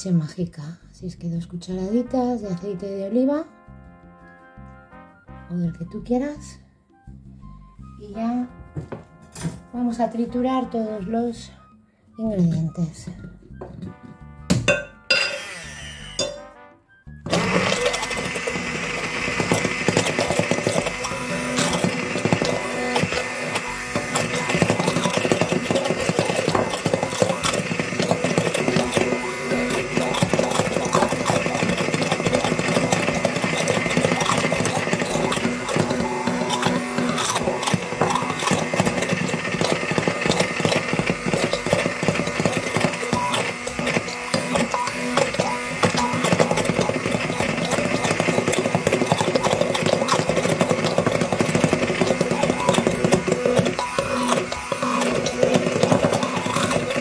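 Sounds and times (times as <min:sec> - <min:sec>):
immersion blender whirring: 0:15.1 - 0:16.4, 0:17.2 - 0:57.0.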